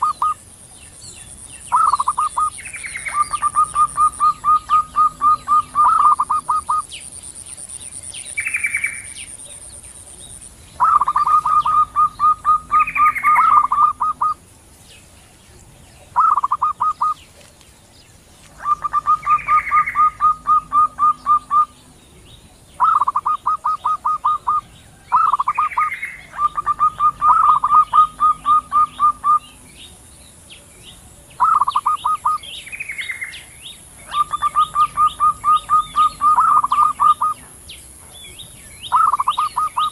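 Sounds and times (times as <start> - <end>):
doves rapid pulsed cooing: 0.0 - 0.5, 1.7 - 14.5, 16.0 - 17.4, 18.5 - 30.1, 30.9 - 32.5, 33.9 - 38.2, 38.8 - 39.9
high sweeping bird note: 18.6 - 21.9.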